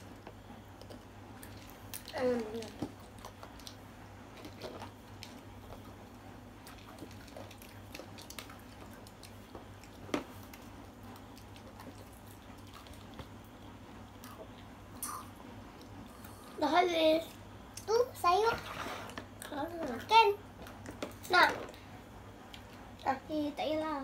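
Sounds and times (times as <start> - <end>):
quiet chewing: 0.0 - 13.6.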